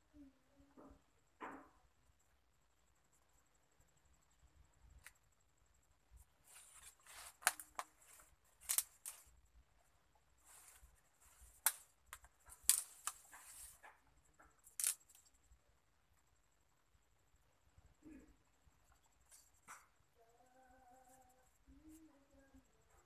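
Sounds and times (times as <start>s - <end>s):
twigs snapping: 7.3s - 8.0s, 8.6s - 9.3s, 11.5s - 13.7s, 14.4s - 15.3s.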